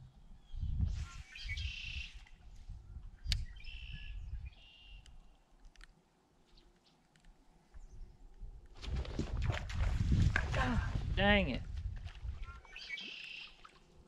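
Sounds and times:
bird chirping: 0.4 - 2.2, 3.2 - 5.4, 12.4 - 13.6.

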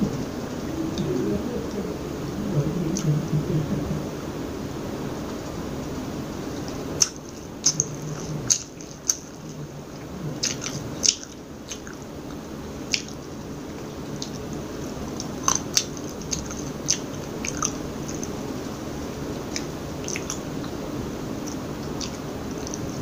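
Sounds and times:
low background noise: 0.0 - 23.0
soft squishy chewing: 6.5 - 18.5, 19.4 - 20.8, 21.4 - 23.0
wet mouth clicks and smacks: 19.5 - 20.4.

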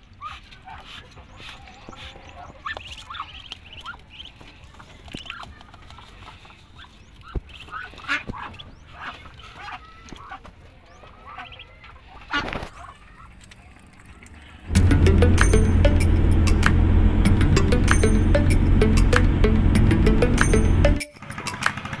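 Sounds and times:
ducklings peeping: 0.0 - 13.5.

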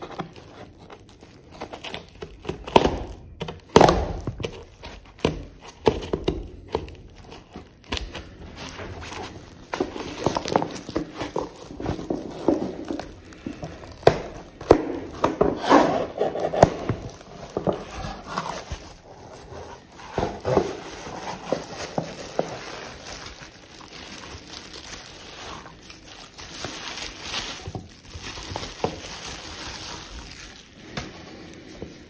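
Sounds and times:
bubble wrap crinkling: 0.0 - 32.0
cardboard box handled: 8.5 - 23.7.

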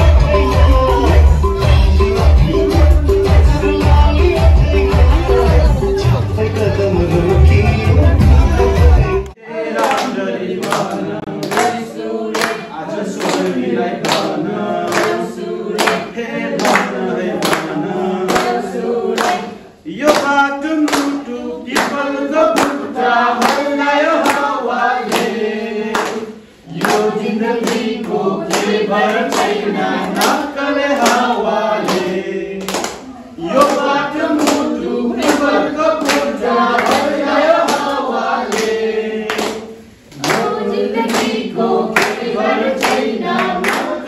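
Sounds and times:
dance music from loudspeaker: 0.0 - 9.3
group singing unaccompanied: 0.0 - 44.0
people clapping in time: 9.8 - 15.2, 15.8 - 19.4, 20.0 - 22.0, 22.6 - 44.0.

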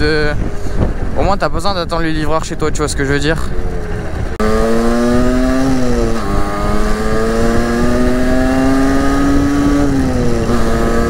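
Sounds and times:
wind rumble: 0.0 - 11.0
two-stroke motorbike engine accelerating: 3.6 - 11.0.

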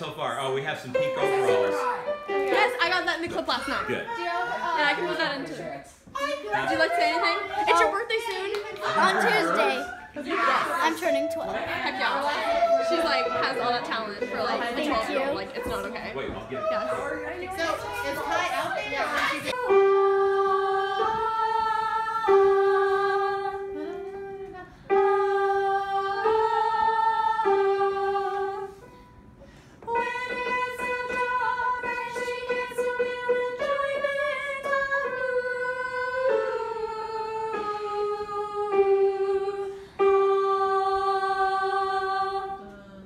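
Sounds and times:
girls singing in unison: 8.6 - 29.0, 29.8 - 43.0.

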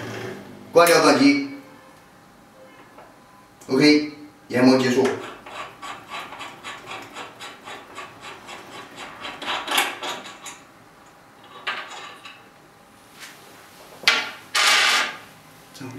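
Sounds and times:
metal scraping on metal: 4.8 - 10.6.

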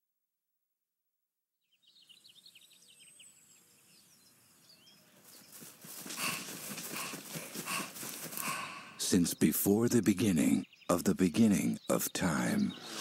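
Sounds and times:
birds chirping: 1.7 - 13.0
regular thumps: 5.5 - 9.1.

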